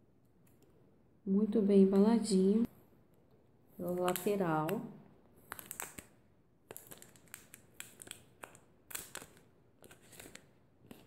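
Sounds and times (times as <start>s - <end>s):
plastic film peeling crackles: 3.8s - 11.0s.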